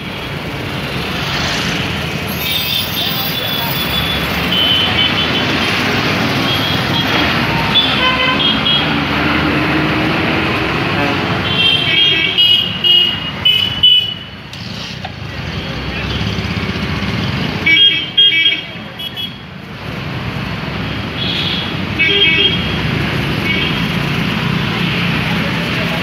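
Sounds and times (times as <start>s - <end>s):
motorbikes and scooters passing: 0.0s - 11.5s, 14.4s - 17.7s, 19.6s - 26.0s.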